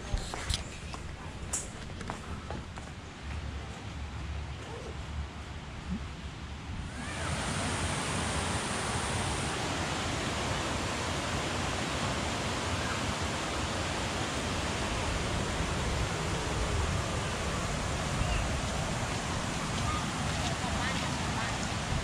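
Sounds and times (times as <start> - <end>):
water rushing: 5.8 - 22.0.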